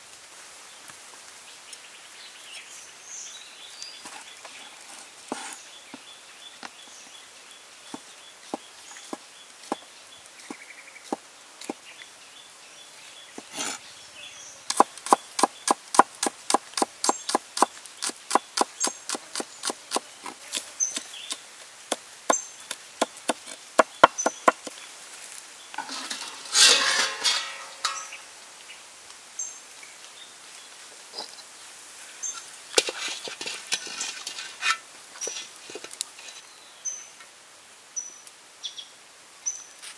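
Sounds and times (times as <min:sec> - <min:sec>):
cleaver chopping on wooden board: 0:14.7 - 0:22.0, 0:23.0 - 0:24.8.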